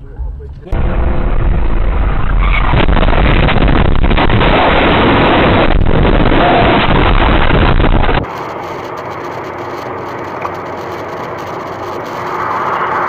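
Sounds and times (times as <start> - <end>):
car driving on highway: 0.0 - 4.8, 7.5 - 13.0
loud rushing noise: 0.8 - 8.3.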